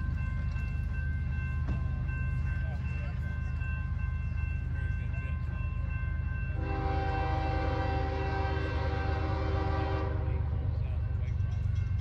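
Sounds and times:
locomotive air horn: 6.6s - 10.6s.

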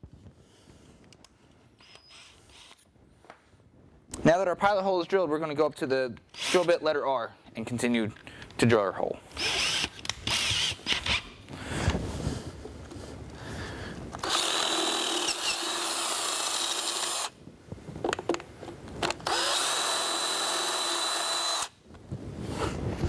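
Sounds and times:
power drill whining: 1.8s - 2.8s, 6.3s - 6.7s, 9.3s - 11.3s, 14.2s - 17.4s, 19.2s - 21.8s.

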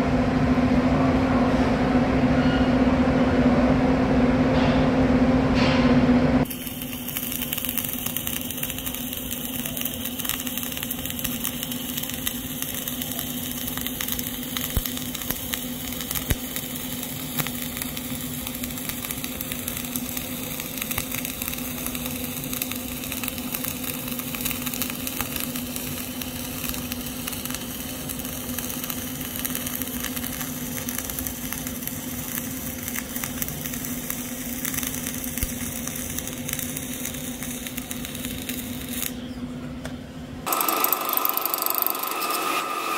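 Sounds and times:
steady low hum: 0.0s - 40.5s
spatter crackles: 6.4s - 39.2s
welding arc crackling hiss: 6.4s - 39.2s, 40.4s - 42.9s.

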